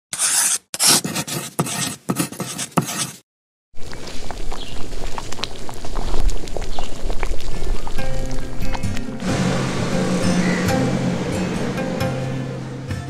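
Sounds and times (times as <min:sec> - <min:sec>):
pen scratching on paper: 0:00.1 - 0:03.2
pot boiling with popping bubbles: 0:03.8 - 0:09.6.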